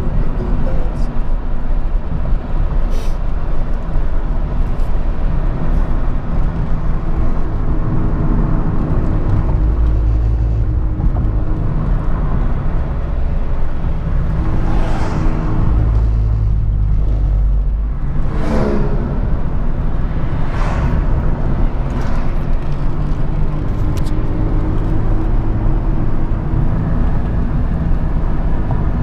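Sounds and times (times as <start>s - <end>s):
car cabin road rumble: 0.0s - 29.0s
car swishing past: 14.2s - 23.9s.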